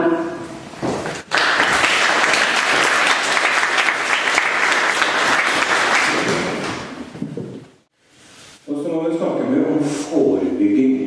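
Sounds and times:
audience applauding: 1.2s - 7.0s.

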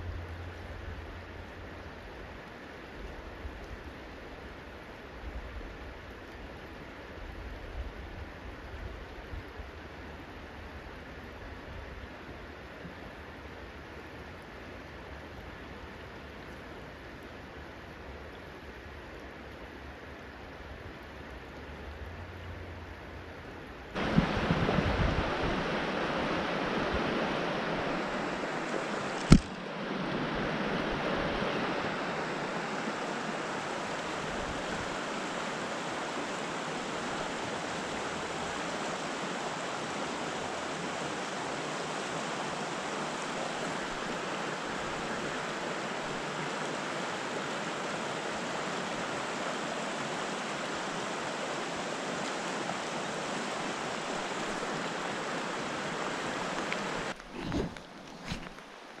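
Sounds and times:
water rushing over rocks: 20.3s - 59.0s
sharp knock: 29.2s - 29.6s.

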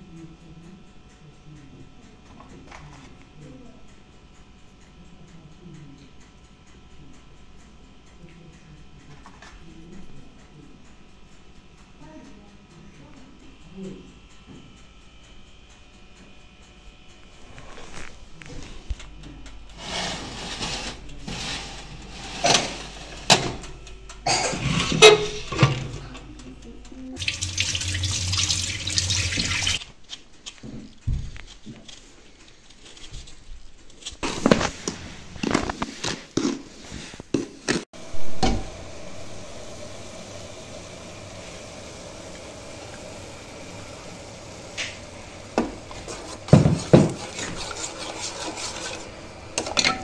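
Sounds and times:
dishes and utensils clattering: 20.0s - 26.3s, 44.8s - 50.0s
tap running into steel sink: 27.2s - 29.8s, 38.2s - 38.8s.

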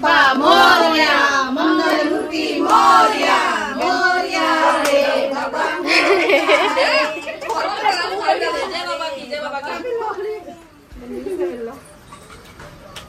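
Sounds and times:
group singing a devotional song: 0.0s - 9.0s.

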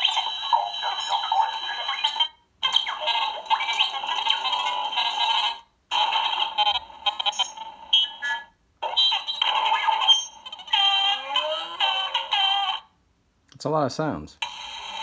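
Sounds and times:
sound effects from small toy speaker: 0.0s - 12.9s.

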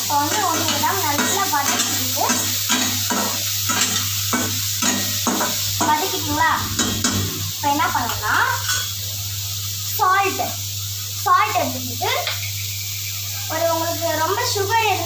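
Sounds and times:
vegetables sizzling in oil: 0.0s - 15.0s
metal ladle scraping pan: 4.8s - 8.9s.

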